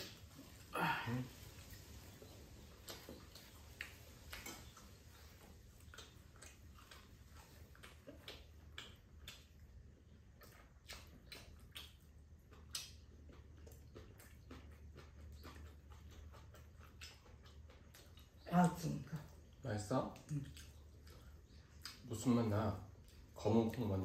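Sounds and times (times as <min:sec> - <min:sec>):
low steady hum: 0:00.0 - 0:24.0
person chewing food: 0:00.0 - 0:24.0.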